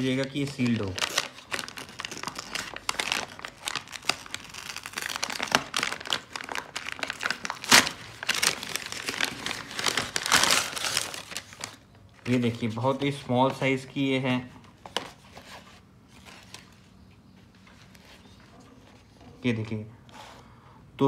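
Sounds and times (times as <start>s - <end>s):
paper envelope crinkling and tearing: 0.0s - 13.2s.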